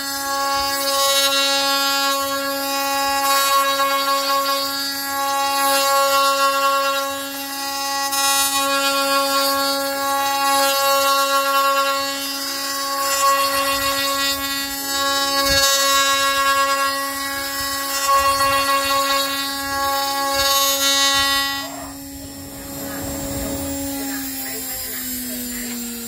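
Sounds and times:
bit cutting wood: 3.2s - 25.8s
drill press motor whine: 12.2s - 26.0s.

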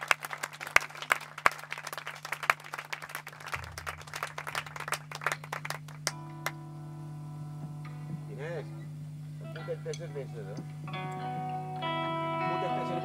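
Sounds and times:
audience applauding: 0.0s - 6.6s
low amplifier hum: 0.0s - 13.0s
electric guitar ringing note: 6.0s - 13.0s.

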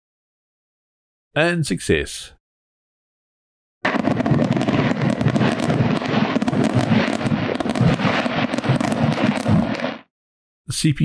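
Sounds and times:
fireworks crackling and popping: 3.9s - 10.1s.

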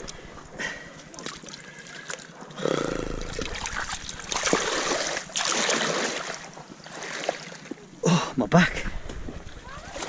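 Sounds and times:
shallow seawater splashing: 3.2s - 7.7s, 9.1s - 10.0s.

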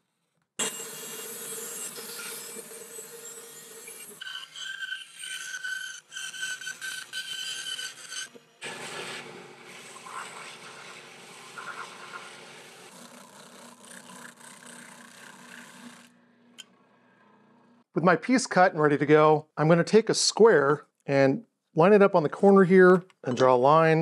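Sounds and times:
saw cutting through plywood: 0.6s - 16.2s.

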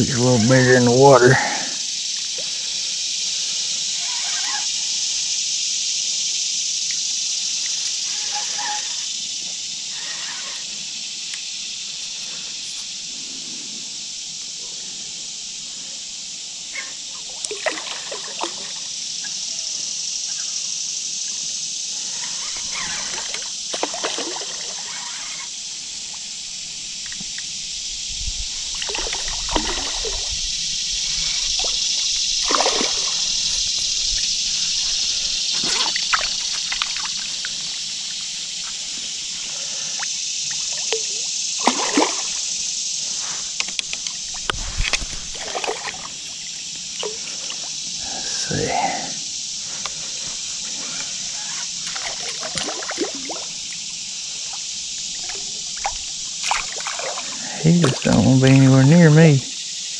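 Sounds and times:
steady high hiss: 0.0s - 59.9s
water splashing: 17.2s - 18.9s, 22.4s - 25.3s, 28.7s - 38.8s, 40.0s - 49.2s, 51.3s - 58.7s.

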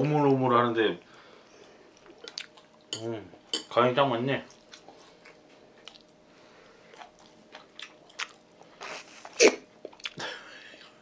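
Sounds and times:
chewing and lip smacks: 1.6s - 2.9s, 4.5s - 6.2s, 6.8s - 10.2s.

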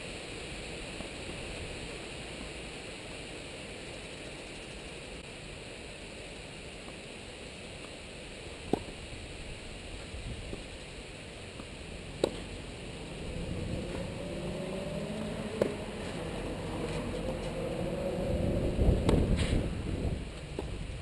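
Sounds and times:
steady background hiss: 0.0s - 21.0s
tennis racket hitting ball: 8.7s - 9.0s, 11.6s - 12.5s, 15.5s - 16.2s, 19.0s - 19.6s.

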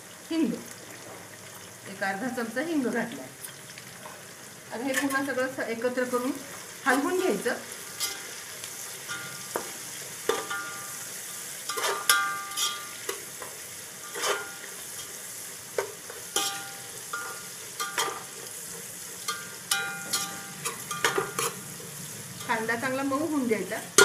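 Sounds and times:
onions sizzling in hot oil: 0.0s - 24.0s
metal spatula knocking and scraping pot: 9.1s - 10.9s, 11.7s - 13.2s, 14.1s - 14.6s, 15.8s - 18.3s, 19.2s - 21.6s.

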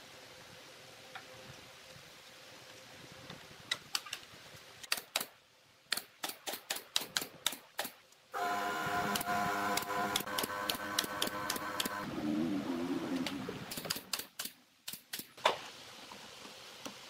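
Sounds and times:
nail gun firing: 5.9s - 7.9s, 9.1s - 12.0s
steady multi-pitched hum: 8.4s - 12.1s.

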